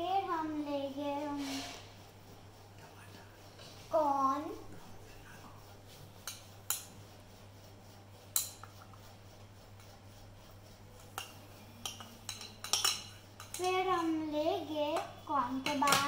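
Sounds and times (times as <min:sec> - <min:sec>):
utensils clinking against dishes: 0:11.0 - 0:14.2, 0:14.9 - 0:16.0.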